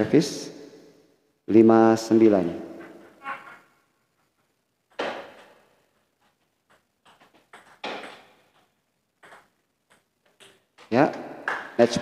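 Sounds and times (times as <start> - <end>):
ball bouncing on table: 4.9 - 5.6, 6.7 - 11.8
table tennis ball hits: 4.9 - 5.7, 6.7 - 12.0.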